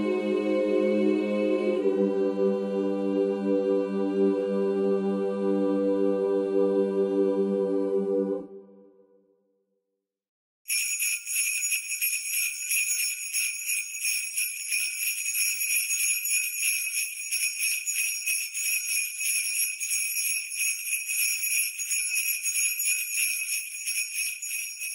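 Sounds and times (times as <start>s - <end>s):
jingle bells shaken: 10.7s - 24.9s.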